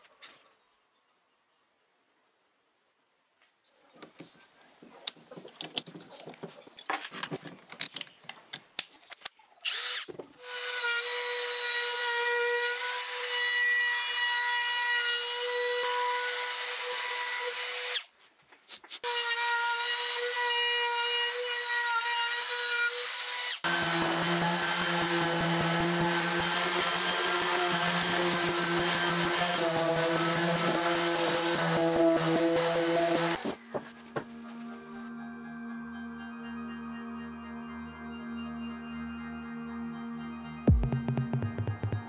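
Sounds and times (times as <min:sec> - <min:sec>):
clicks and knocks of handling tool: 0:05.0 - 0:09.4
router whining while cutting wood: 0:09.7 - 0:18.0, 0:19.0 - 0:34.6.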